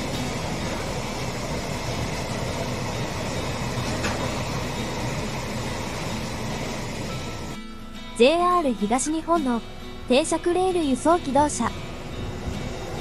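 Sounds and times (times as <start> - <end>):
steel wheels rumbling on rails: 0.0 - 7.6, 11.0 - 13.0.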